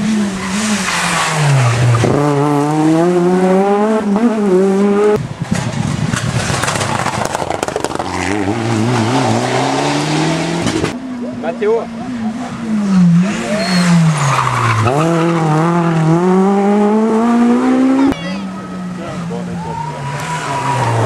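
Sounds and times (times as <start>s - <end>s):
rally car engine accelerating: 0.0s - 21.0s
wavering rally car engine: 0.0s - 21.0s
rough crackling noise: 5.2s - 9.1s.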